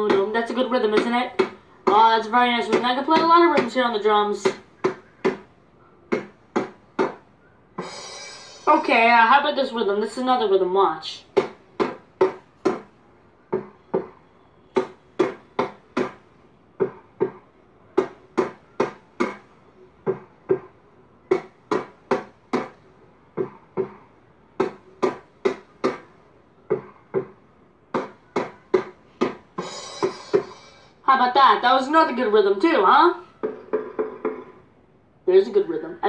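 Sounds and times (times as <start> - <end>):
drum struck with sticks: 29.6 - 30.7.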